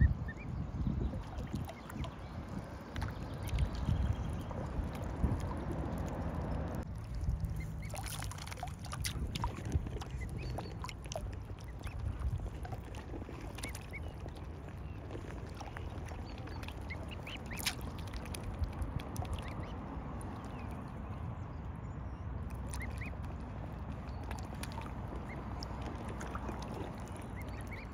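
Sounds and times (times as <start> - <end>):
steady low rumble: 0.0 - 27.9
cygnets peeping: 9.8 - 18.2, 22.6 - 23.3.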